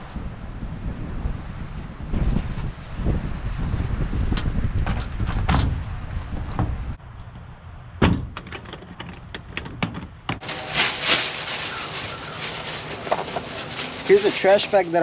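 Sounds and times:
wind rumble on microphone: 0:00.0 - 0:10.4
plastic bag rustling: 0:08.6 - 0:15.0.

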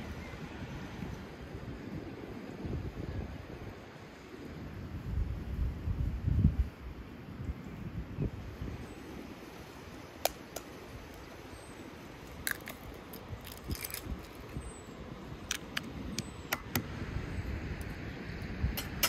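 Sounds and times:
eggs cracking against bowl: 0:12.3 - 0:14.6.

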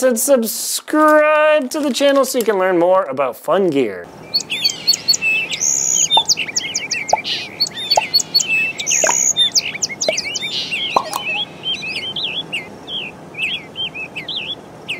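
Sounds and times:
birds chirping: 0:04.1 - 0:14.9.

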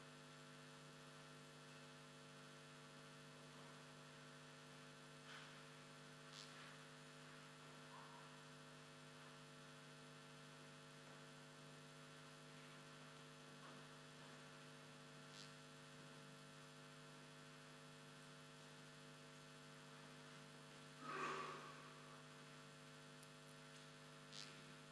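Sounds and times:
electrical mains hum: 0:00.0 - 0:24.9
faint brief noises: 0:21.0 - 0:22.2.

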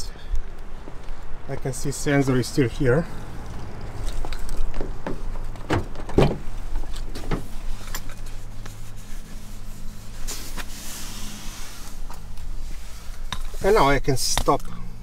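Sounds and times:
car door clicks and knocks: 0:04.8 - 0:06.5.

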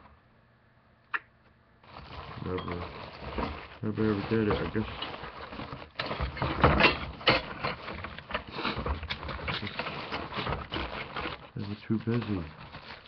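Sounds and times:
parts rattling in a box: 0:01.8 - 0:13.0.

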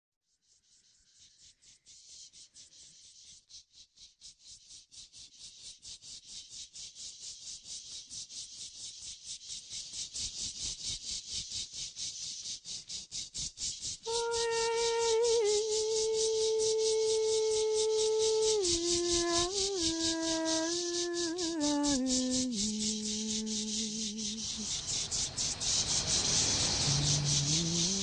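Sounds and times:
rhythmic rattling: 0:14.1 - 0:28.0.

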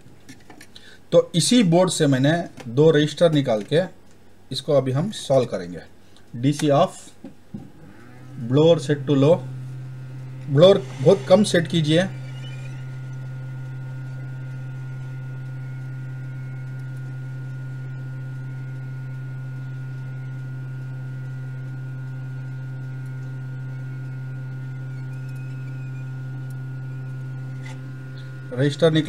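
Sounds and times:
hot air blower humming: 0:06.0 - 0:29.0.

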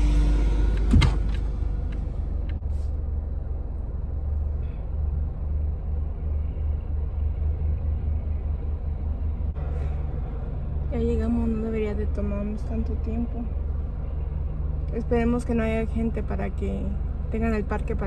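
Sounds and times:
car engine and road rumble: 0:00.0 - 0:18.0.

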